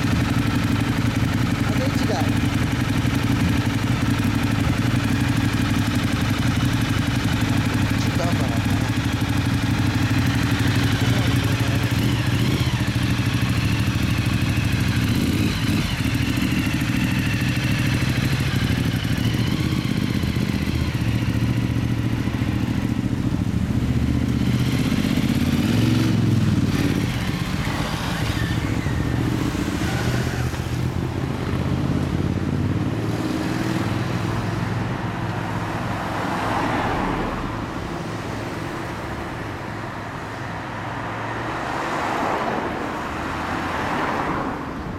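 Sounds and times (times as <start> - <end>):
motorcycle engine idling: 0.0 - 29.6
motorcycle pulling away: 0.0 - 36.8
motorcycle and car traffic: 0.0 - 44.9.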